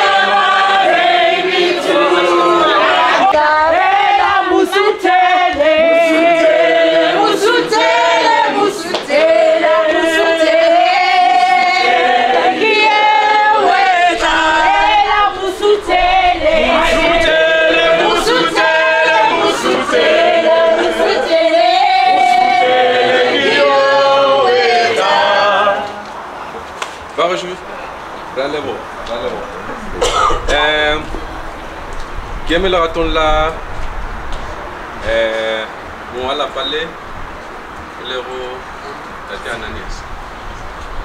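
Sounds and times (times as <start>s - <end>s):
group singing in chorus: 0.0s - 26.3s.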